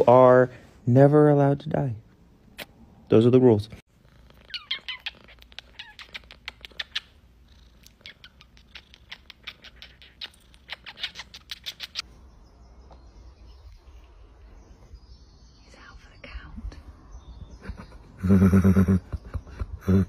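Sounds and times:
cat purring: 0:03.9 - 0:12.0.

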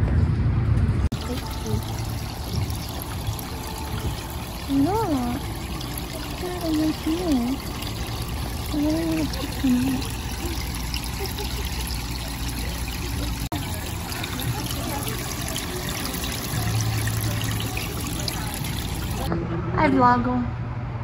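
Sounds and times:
water pouring into tanks: 0:01.1 - 0:19.3.

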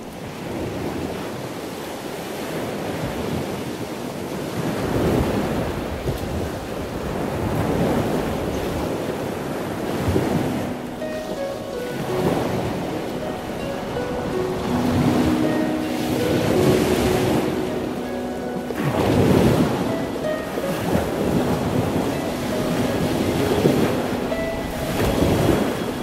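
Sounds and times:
ocean surf breaking on beach: 0:00.0 - 0:26.0.

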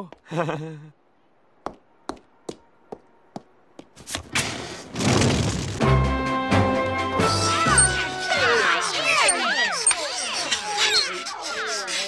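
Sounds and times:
cartoon footsteps: 0:01.6 - 0:04.4
rush of fire flames: 0:04.0 - 0:05.8
music: 0:05.8 - 0:08.7.

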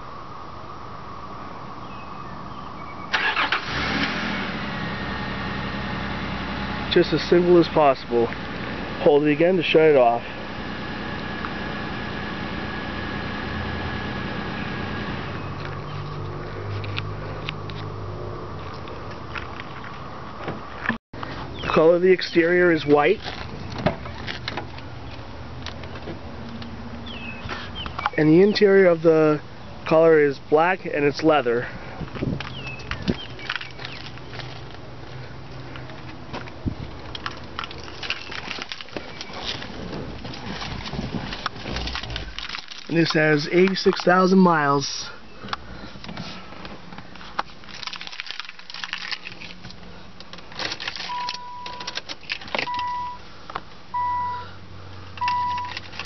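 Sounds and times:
car engine idling: 0:03.2 - 0:16.4
rustling: 0:32.2 - 0:44.1, 0:45.7 - 0:52.7.

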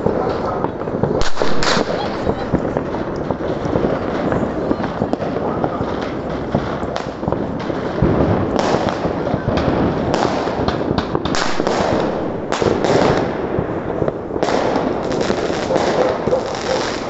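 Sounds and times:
firecracker bangs: 0:00.0 - 0:17.0
fireworks crackling: 0:00.0 - 0:17.0.

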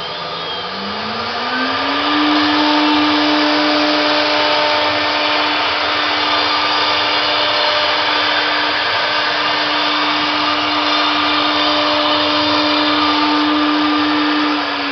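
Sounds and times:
router motor whine: 0:00.0 - 0:14.9.

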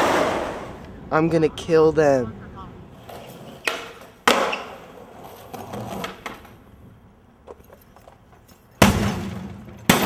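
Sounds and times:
skateboard striking the ground: 0:00.0 - 0:00.7, 0:03.0 - 0:06.6, 0:07.4 - 0:10.0
skateboard wheels rolling on concrete: 0:00.0 - 0:10.0.

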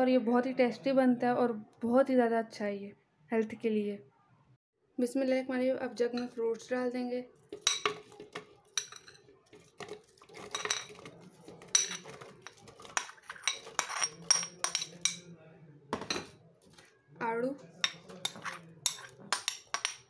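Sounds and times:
spoon clinking against ceramic bowl: 0:07.6 - 0:09.2, 0:09.8 - 0:15.3, 0:17.8 - 0:20.0.

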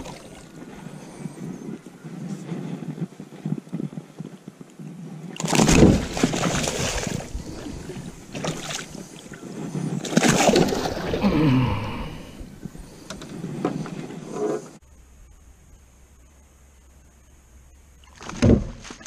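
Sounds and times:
fish thrashing and splashing water: 0:05.4 - 0:11.3.

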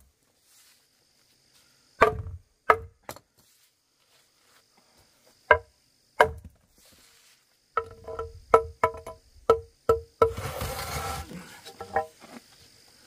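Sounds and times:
insects buzzing: 0:00.0 - 0:13.0
hammer striking stone: 0:02.0 - 0:03.2.

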